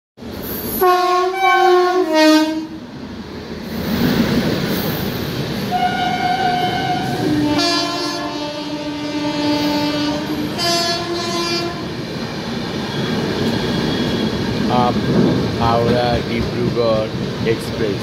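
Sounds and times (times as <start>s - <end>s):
rumble of passing train coaches: 0.2s - 18.0s
train horn blowing: 0.7s - 2.8s, 5.7s - 12.0s.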